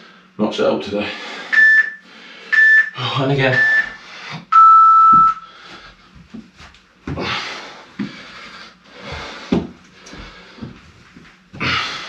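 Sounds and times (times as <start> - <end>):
man breathing hard: 1.0 - 2.6, 5.4 - 6.3, 7.1 - 10.9, 11.6 - 12.0
interval timer beep: 1.6 - 5.4.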